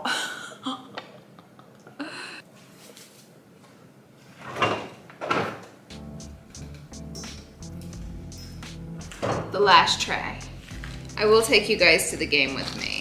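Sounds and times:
background music with low note: 5.9s - 13.0s.

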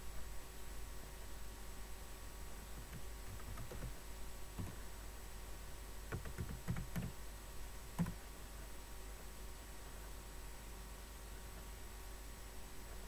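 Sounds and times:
steady low hum: 0.0s - 13.0s
keyboard keystrokes: 2.8s - 4.0s, 4.6s - 4.8s, 6.1s - 7.2s, 8.0s - 8.2s.

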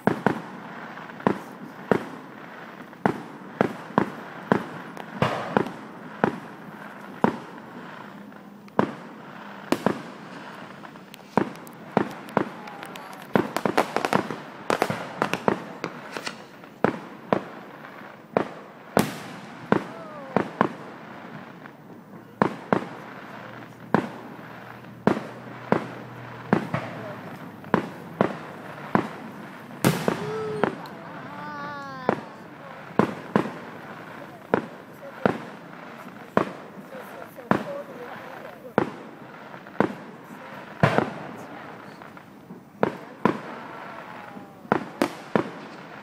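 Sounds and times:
fireworks bangs: 0.0s - 46.0s
fireworks crackling: 0.0s - 46.0s.

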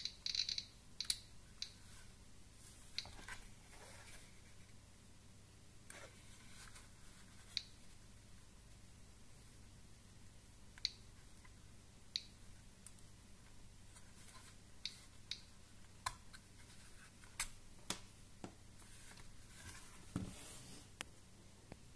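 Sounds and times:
geiger counter clicking: 0.0s - 1.8s.

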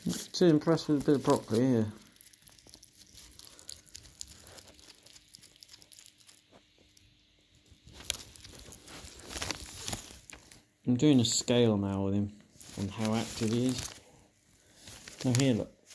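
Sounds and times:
rustling: 0.0s - 11.6s, 12.4s - 15.9s
hedgehog clicks and crunches: 0.7s - 10.6s.

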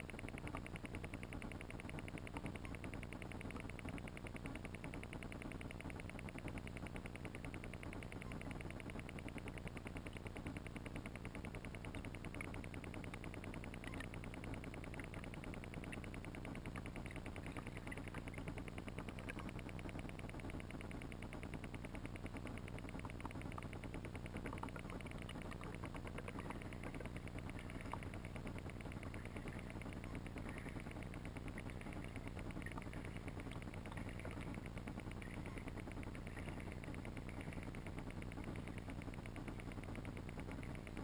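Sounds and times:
faint small clicks: 0.0s - 41.0s
underwater rumble and hiss: 12.1s - 41.0s.

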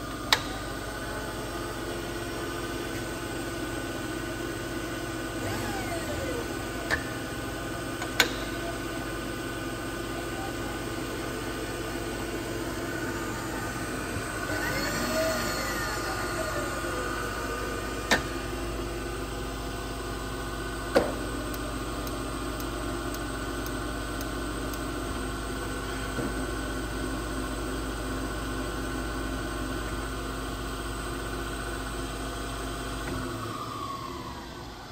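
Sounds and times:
milling machine humming: 0.0s - 34.9s
rising and falling pitch: 12.2s - 18.5s.

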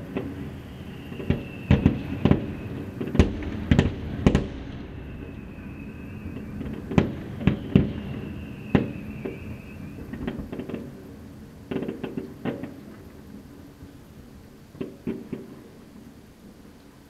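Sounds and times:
faint high whistle: 0.0s - 11.0s
fireworks bursting: 0.0s - 16.1s.

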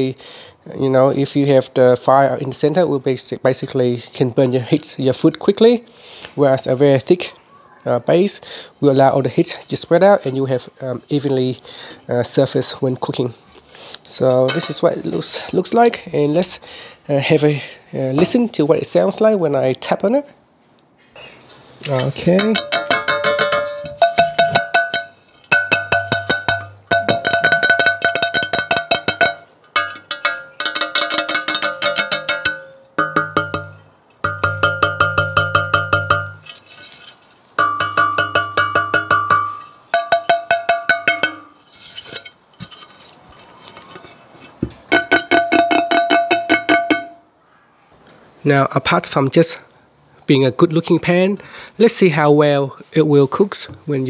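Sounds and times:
fingertips tapping metal pan: 14.5s - 14.9s, 22.0s - 43.0s, 44.8s - 47.2s
pan ringing with metallic tones: 22.3s - 37.0s, 37.6s - 42.8s, 44.9s - 47.3s.

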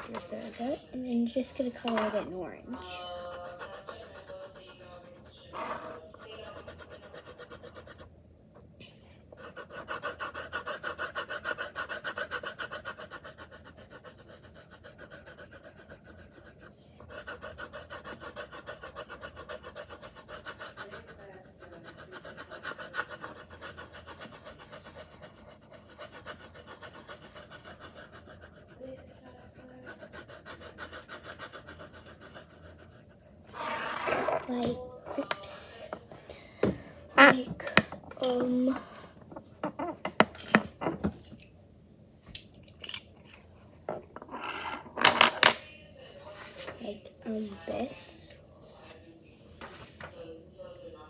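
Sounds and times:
scribbling on paper: 2.8s - 8.1s, 9.3s - 34.1s.

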